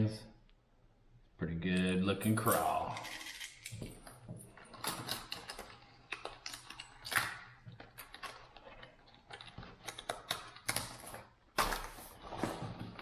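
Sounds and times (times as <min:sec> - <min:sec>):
plastic packaging clicks and rustles: 0:03.2 - 0:13.0.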